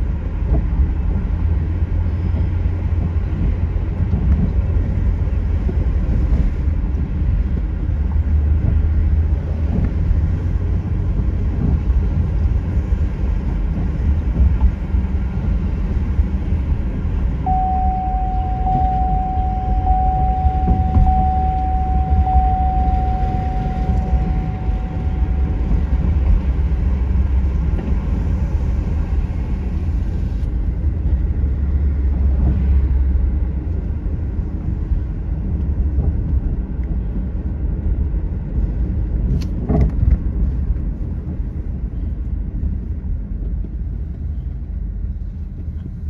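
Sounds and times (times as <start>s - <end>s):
car engine and road noise: 0.0s - 46.0s
thin steady tone: 17.4s - 26.4s.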